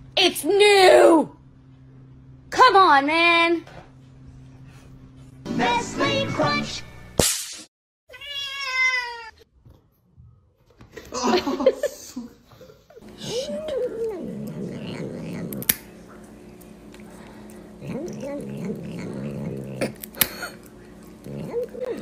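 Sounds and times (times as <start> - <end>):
cat meowing: 8.1 - 9.4
cat licking: 13.0 - 22.0.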